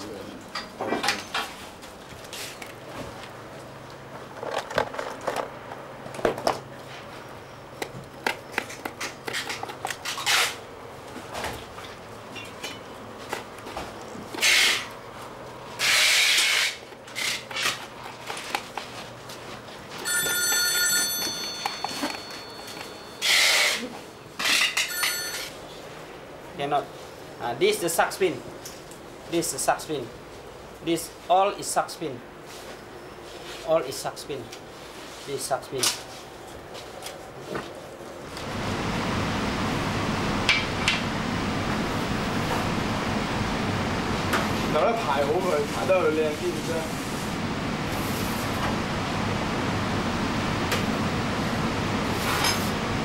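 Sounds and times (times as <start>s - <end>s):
high ringing tone: 20.0s - 23.7s, 24.8s - 25.6s.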